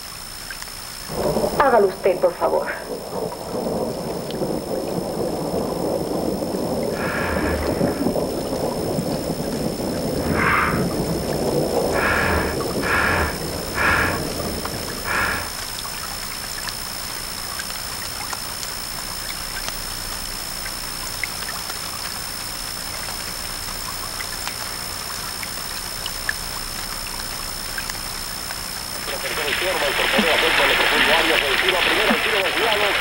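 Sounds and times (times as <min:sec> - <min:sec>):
film hiss with crackles: 0:00.0 - 0:33.0
low rumble: 0:01.1 - 0:15.8
thin high whine: 0:10.2 - 0:15.6.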